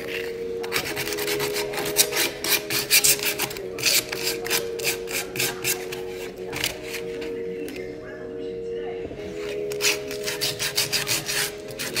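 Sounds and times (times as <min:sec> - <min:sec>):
sandpaper rubbing on wood: 0:00.7 - 0:07.0, 0:09.7 - 0:12.0.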